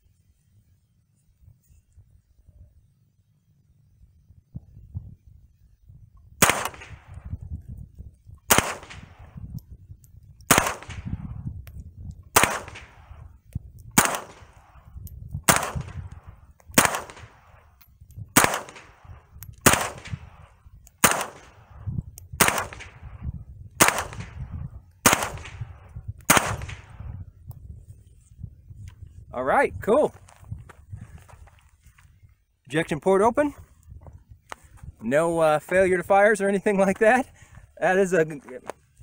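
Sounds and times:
wind rumble on microphone: 3.9s - 39.0s
rifle shots: 6.4s - 7.3s, 8.5s - 9.4s, 10.5s - 11.3s, 12.3s - 13.2s, 13.9s - 17.7s, 18.3s - 21.8s, 22.4s - 23.2s, 23.8s - 27.0s.

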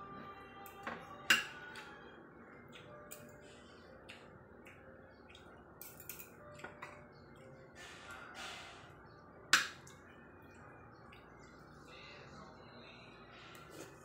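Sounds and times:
cutlery clinking on a plate: 0.7s - 1.7s, 5.8s - 7.1s.

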